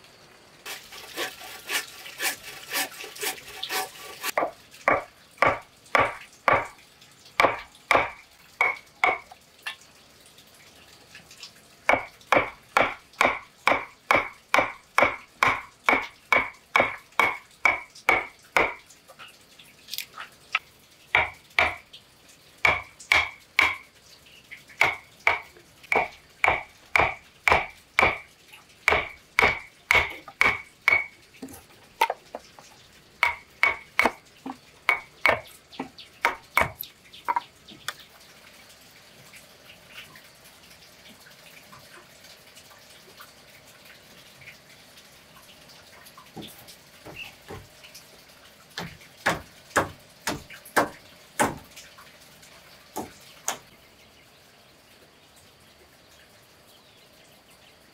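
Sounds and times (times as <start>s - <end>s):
hand saw cutting timber: 0.6s - 4.5s
chisel struck into wood: 22.7s - 23.8s, 28.9s - 31.1s.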